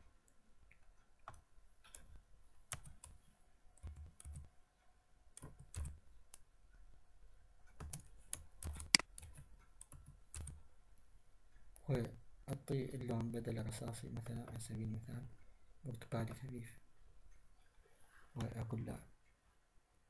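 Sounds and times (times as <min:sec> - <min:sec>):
computer keyboard typing: 0:01.2 - 0:03.2, 0:03.8 - 0:04.5, 0:05.4 - 0:06.0, 0:07.7 - 0:10.6
mouse clicks: 0:07.7 - 0:10.6.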